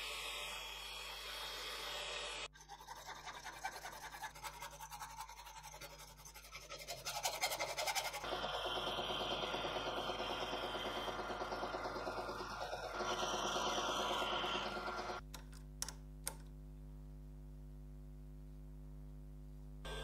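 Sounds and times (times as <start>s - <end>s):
drilling machine drilling brass: 8.2s - 15.2s.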